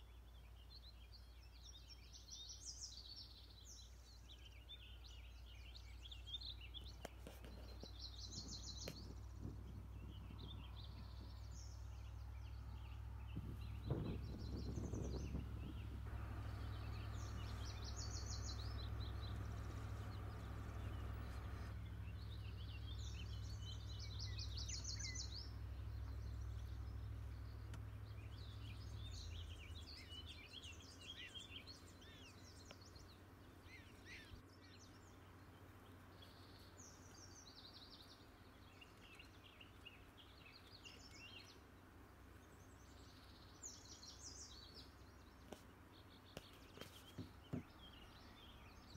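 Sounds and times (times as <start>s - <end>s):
low steady rumble: 0.0s - 48.9s
songbirds singing trills: 0.0s - 48.9s.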